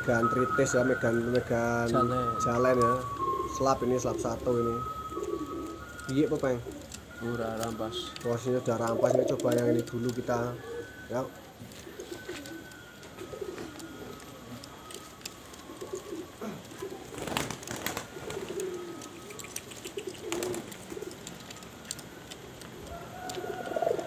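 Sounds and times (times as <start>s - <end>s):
pigeons cooing: 0.0s - 24.0s
wing flapping: 11.6s - 24.0s.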